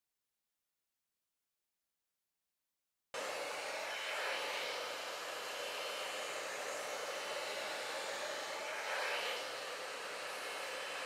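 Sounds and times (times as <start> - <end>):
hair dryer blowing: 3.2 - 11.0.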